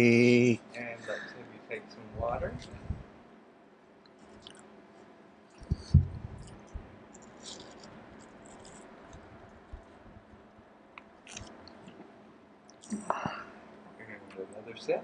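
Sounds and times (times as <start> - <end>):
sipping and mouth clicks: 4.4 - 4.7, 11.2 - 12.0, 12.7 - 13.4
low thump: 5.8 - 6.4.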